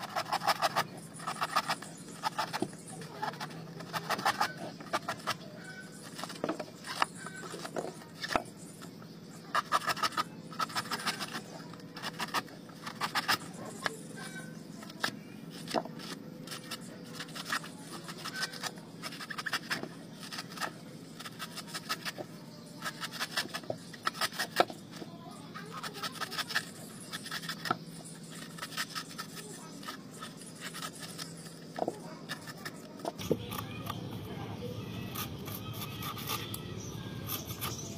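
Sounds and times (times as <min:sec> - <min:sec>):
knife scraping coconut husk: 0:00.0 - 0:37.9.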